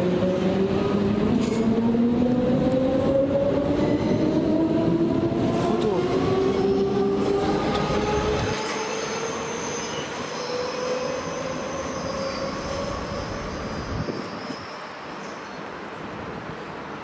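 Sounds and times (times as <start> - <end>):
train wheels squealing: 3.7 - 4.6, 7.3 - 16.8.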